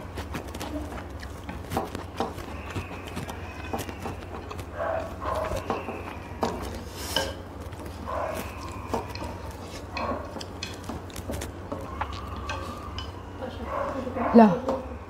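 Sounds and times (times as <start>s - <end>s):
eating noises: 0.0s - 15.0s
low steady hum: 0.0s - 15.0s
chopsticks clicking on metal pot: 8.8s - 13.2s.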